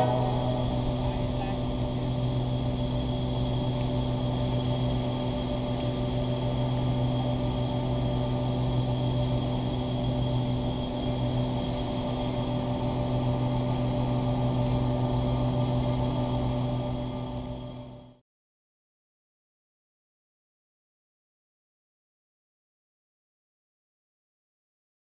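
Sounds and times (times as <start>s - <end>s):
diesel engine drone: 0.0s - 18.2s.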